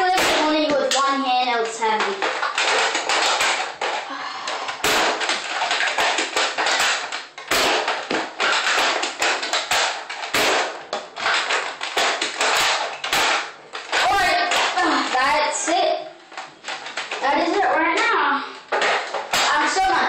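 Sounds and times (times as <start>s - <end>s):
loud rustling noise: 0.0s - 20.0s
toy blaster plastic clacks: 0.4s - 15.2s.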